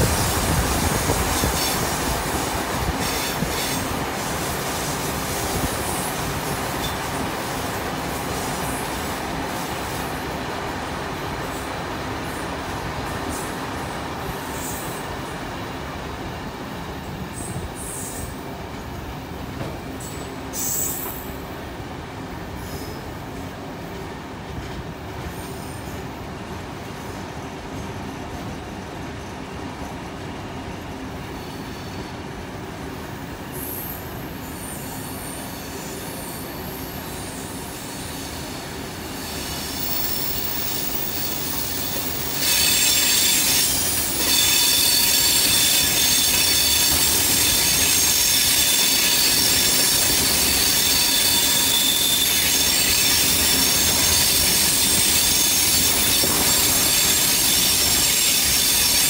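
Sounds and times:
train carriages rumbling on rails: 0.0s - 59.0s
high-pitched wheel squeal: 39.2s - 59.0s.

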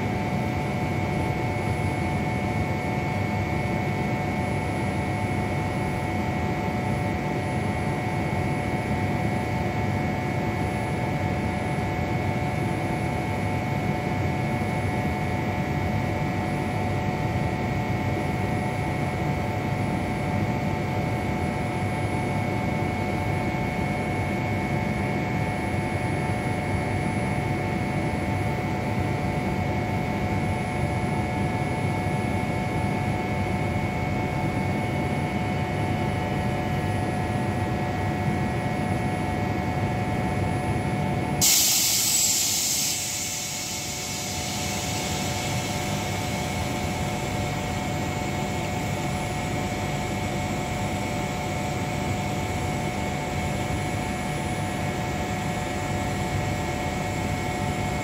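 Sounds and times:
air hiss burst: 41.4s - 47.0s
electric train humming: 41.5s - 50.1s.

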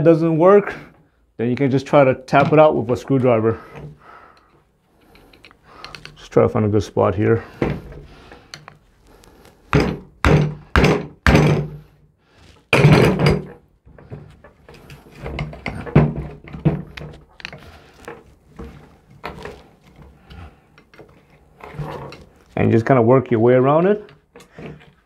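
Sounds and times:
hammer knocking on metal: 9.7s - 11.8s.

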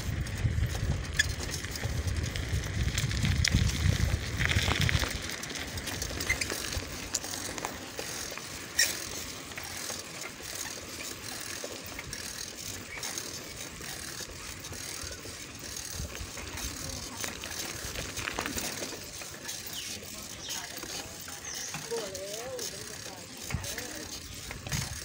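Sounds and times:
wind rumble on microphone: 0.0s - 6.1s
bicycle freewheel ticking: 0.0s - 25.0s.

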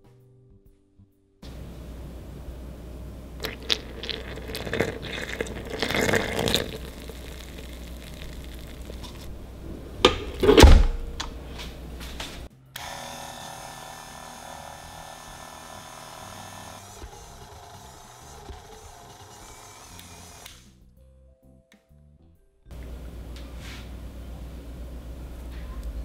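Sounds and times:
loud heavy thump: 9.6s - 11.2s
stand mixer motor running: 12.8s - 20.6s.

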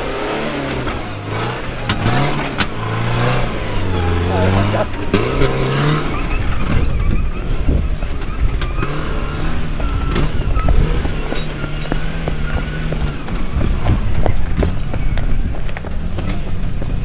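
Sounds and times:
truck engine running hard: 0.0s - 17.0s
truck knocking and clattering: 4.8s - 17.0s.

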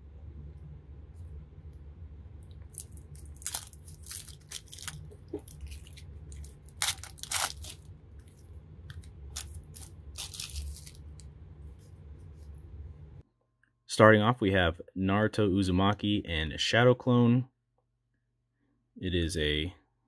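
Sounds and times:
steady low hum: 0.0s - 20.0s
plastic shrink wrap crinkling: 2.5s - 11.3s.

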